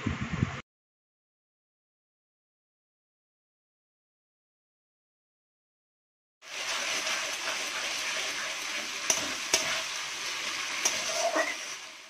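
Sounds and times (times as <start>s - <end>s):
paste sizzling in a wok: 6.4s - 12.0s.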